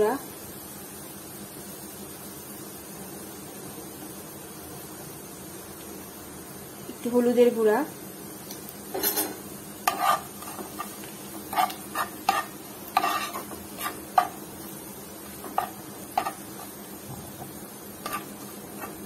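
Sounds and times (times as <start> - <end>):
onions sizzling in oil: 0.0 - 19.0
spatula scraping frying pan: 8.9 - 14.6, 15.2 - 19.0.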